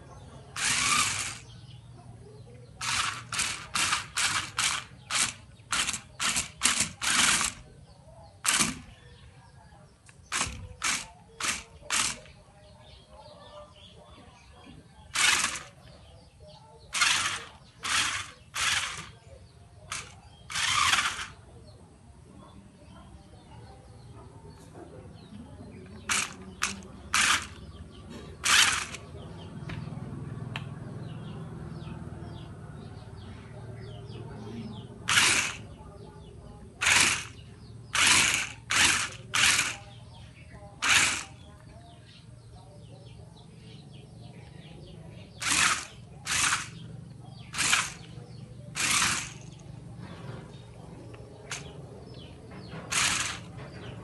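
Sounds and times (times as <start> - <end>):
electric motors humming: 0.0 - 1.8, 2.7 - 7.7, 8.4 - 8.9, 10.2 - 12.3, 15.1 - 15.9, 16.9 - 21.5, 25.9 - 29.8, 34.6 - 41.6, 45.3 - 54.0
birds chirping faintly: 0.0 - 54.0
toy car wheels scraping: 0.6 - 1.5, 2.8 - 7.6, 8.4 - 8.9, 10.2 - 12.3, 15.1 - 15.8, 16.9 - 19.2, 19.9 - 21.4, 26.1 - 27.6, 28.4 - 29.0, 35.1 - 35.7, 36.8 - 39.9, 40.8 - 41.4, 45.4 - 46.8, 47.5 - 49.6, 51.4 - 51.8, 52.8 - 54.0.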